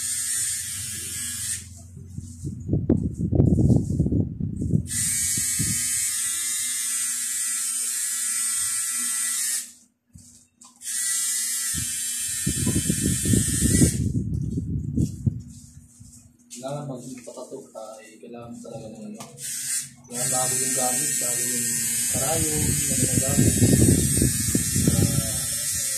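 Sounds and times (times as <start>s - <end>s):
tattoo machine buzzing: 0.0s - 2.4s, 4.8s - 14.2s, 19.2s - 25.9s.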